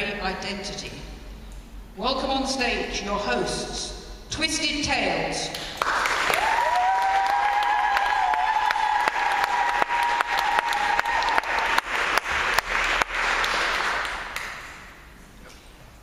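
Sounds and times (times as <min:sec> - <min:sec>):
audience applauding: 0:05.8 - 0:14.9.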